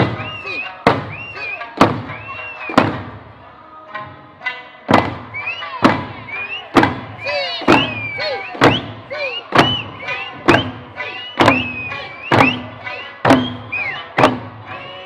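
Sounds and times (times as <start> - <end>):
taiko drum beats: 0.0 - 15.0
voices calling: 5.4 - 15.0.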